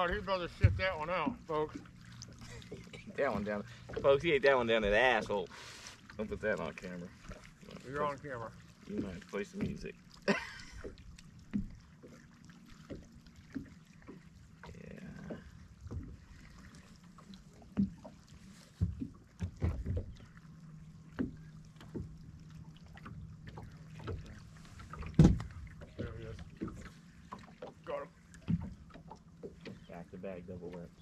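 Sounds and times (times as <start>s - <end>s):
knocks on boat deck: 18.8s - 20.2s, 24.9s - 27.8s
heavy thump: 25.1s - 26.2s.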